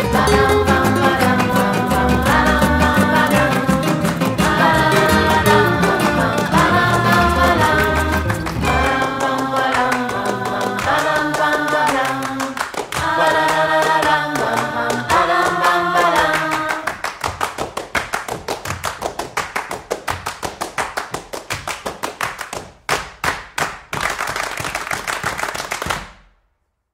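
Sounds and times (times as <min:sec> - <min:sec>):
background song with singing: 0:00.0 - 0:17.2
fast percussive taps: 0:00.0 - 0:25.9.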